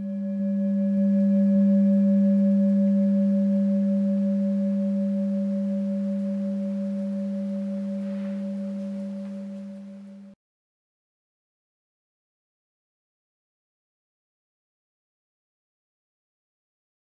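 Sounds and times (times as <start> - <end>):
singing bowl ringing: 0.0 - 10.4.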